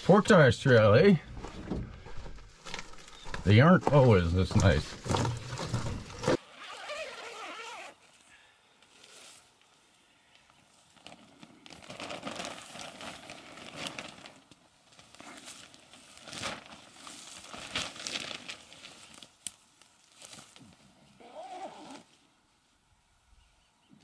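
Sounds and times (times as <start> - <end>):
footsteps on a trail: 1.2 - 6.4.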